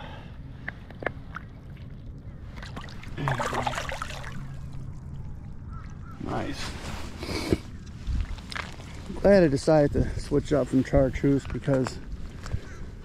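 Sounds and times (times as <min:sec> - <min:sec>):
river water splashing: 0:01.2 - 0:06.9.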